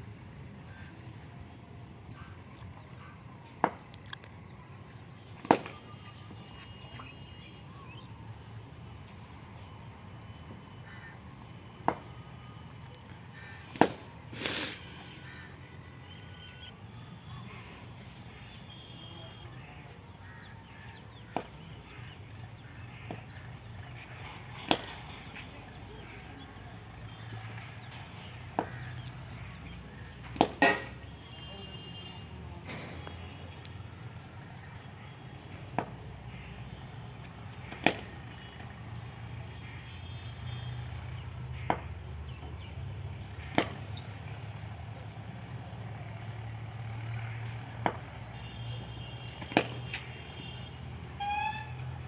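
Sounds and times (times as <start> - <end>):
bat striking ball: 5.4 - 5.7, 13.8 - 14.1, 24.7 - 24.9, 30.3 - 31.0, 37.7 - 38.1, 41.7 - 41.9, 43.5 - 43.9, 49.4 - 49.9.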